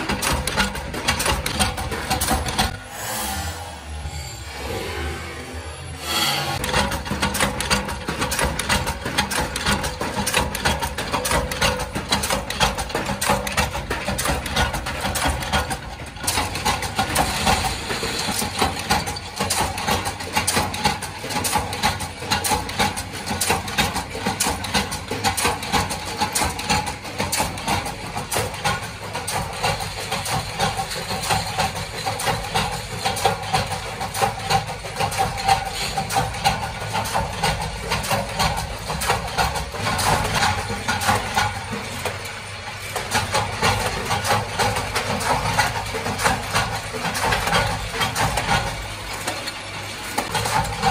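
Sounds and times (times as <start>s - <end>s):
steady machine hum: 0.0s - 19.6s.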